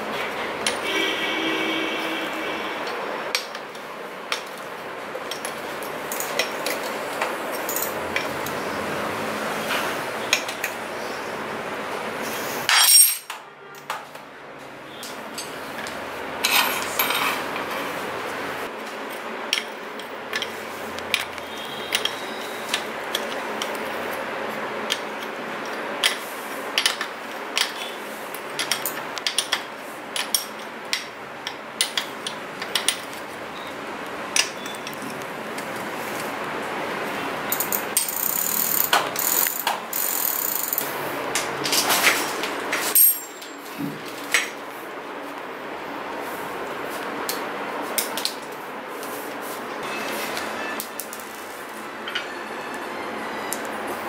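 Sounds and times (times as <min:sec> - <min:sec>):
metal spanner clinking on pedal: 0:12.7 - 0:13.3, 0:37.5 - 0:40.9, 0:42.9 - 0:43.6.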